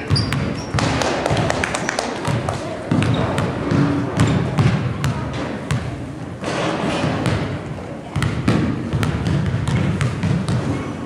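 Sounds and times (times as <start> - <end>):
background hubbub: 0.0 - 11.0
basketball bouncing on hardwood: 2.3 - 5.9, 8.2 - 10.6.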